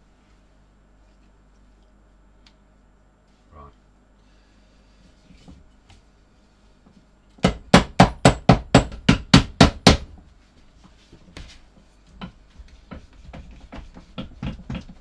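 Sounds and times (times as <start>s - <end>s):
hammer striking leather sole: 7.4s - 10.1s.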